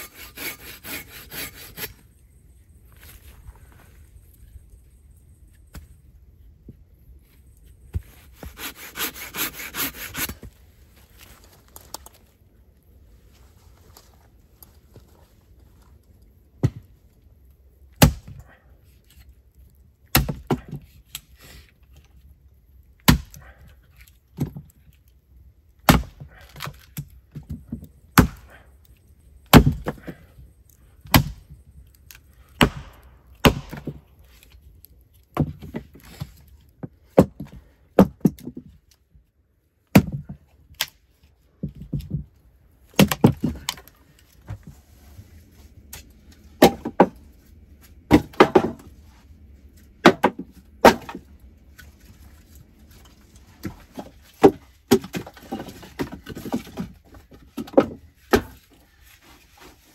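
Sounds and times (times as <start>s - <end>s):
axe blows splitting wood: 25.8s - 26.7s, 32.5s - 34.1s, 50.0s - 51.3s
split wood falling knock: 43.0s - 43.8s, 48.1s - 48.9s, 50.0s - 51.3s.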